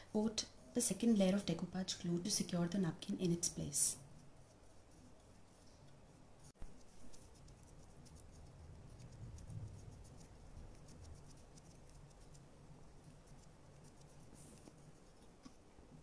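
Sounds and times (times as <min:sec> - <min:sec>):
low steady hum: 0:00.0 - 0:16.0
paintbrush scratching: 0:03.3 - 0:15.6.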